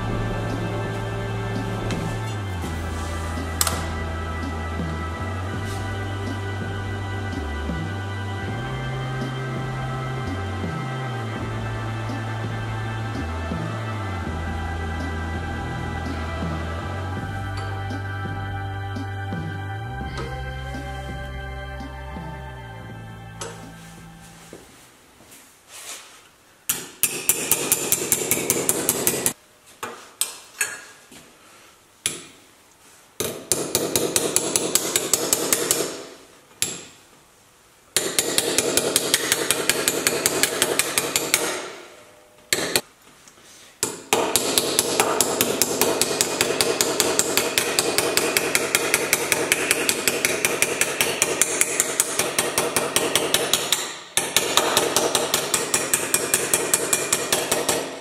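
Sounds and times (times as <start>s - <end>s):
hammer striking sheet metal: 26.7s - 29.4s, 33.2s - 36.8s, 38.0s - 42.8s, 43.8s - 58.0s.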